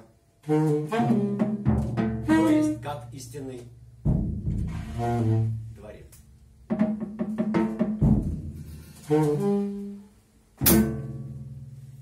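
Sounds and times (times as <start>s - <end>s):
saxophone playing short notes: 0.4s - 3.1s, 8.9s - 10.1s
drum kit: 0.6s - 9.8s, 10.5s - 12.0s.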